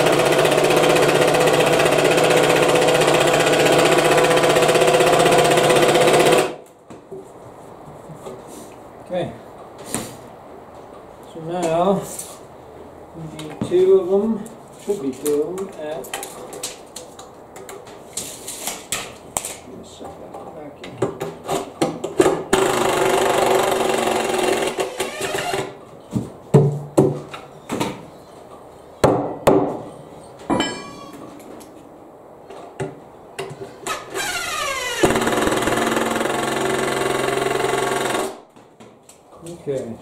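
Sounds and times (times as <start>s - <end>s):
sharp knocks: 29.0s - 29.8s.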